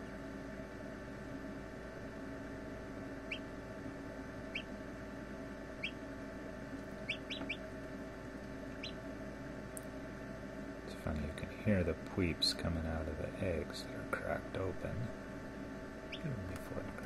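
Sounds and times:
incubator hum: 0:00.0 - 0:17.0
chicks peeping: 0:04.5 - 0:04.8, 0:05.8 - 0:06.0, 0:06.8 - 0:07.8, 0:08.7 - 0:09.0, 0:16.1 - 0:16.3.

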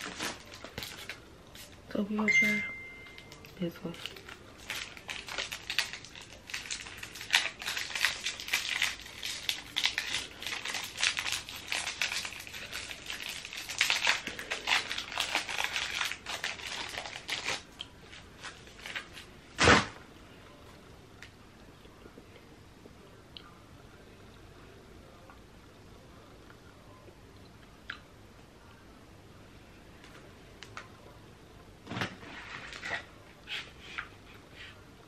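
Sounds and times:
candy wrapper crinkling and tearing: 0:03.2 - 0:19.2.

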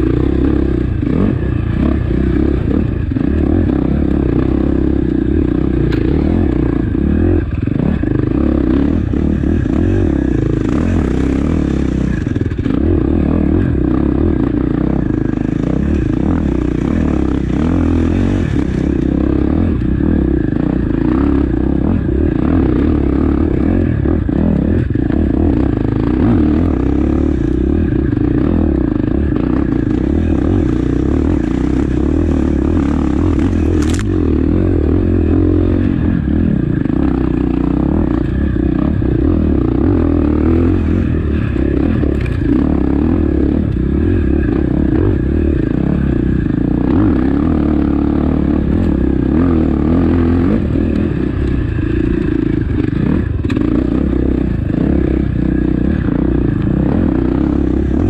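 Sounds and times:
motorcycle engine revving: 0:00.0 - 0:58.0
sharp click: 0:33.7 - 0:34.1.

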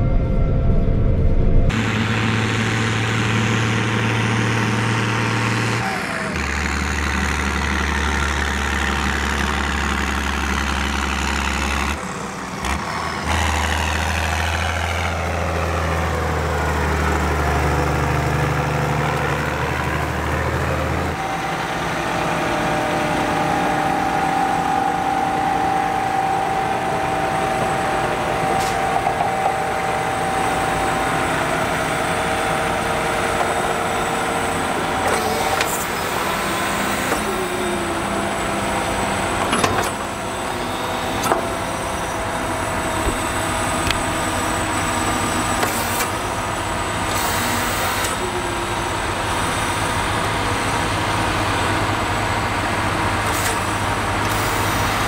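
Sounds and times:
steady whine: 0:00.0 - 0:04.9, 0:21.0 - 0:49.2
farm machinery diesel engines: 0:00.0 - 0:55.0.

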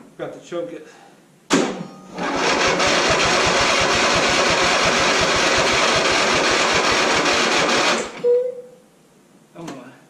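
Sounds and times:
electric starter cranking engine: 0:02.2 - 0:08.2.

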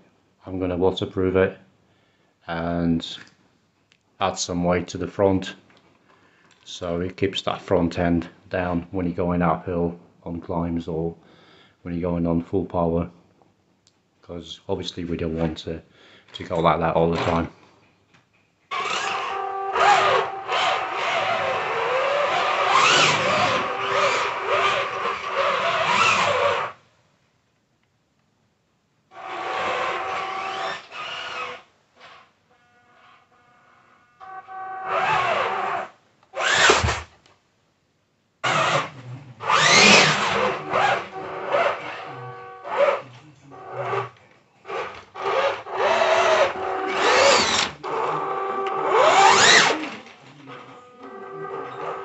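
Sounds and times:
electric motors whining: 0:18.7 - 0:26.8, 0:29.1 - 0:37.0, 0:38.4 - 0:52.0.

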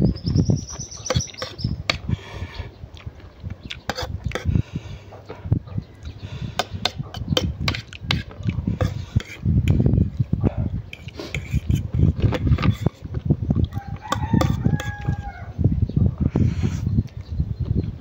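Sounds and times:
fork scraping ceramic plate: 0:01.0 - 0:02.0, 0:03.9 - 0:04.5, 0:06.6 - 0:09.8, 0:10.9 - 0:13.1, 0:14.1 - 0:15.2
chewing and slurping noodles: 0:06.0 - 0:09.8.

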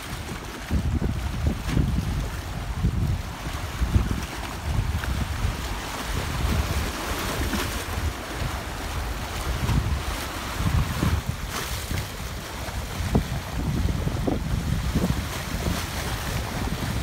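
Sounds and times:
waves splashing against rocks: 0:00.0 - 0:17.0
wind buffeting microphone: 0:00.0 - 0:17.0.

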